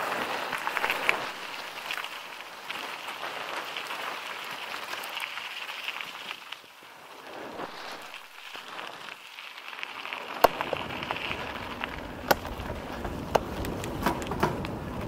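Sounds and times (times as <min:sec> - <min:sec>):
bike tyres crunching over gravel: 0:00.0 - 0:15.0
knocks and rattles: 0:12.0 - 0:15.0.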